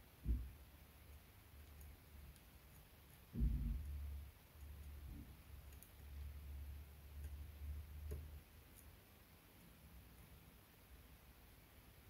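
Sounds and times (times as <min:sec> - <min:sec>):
dull low bump: 0:03.3 - 0:04.2.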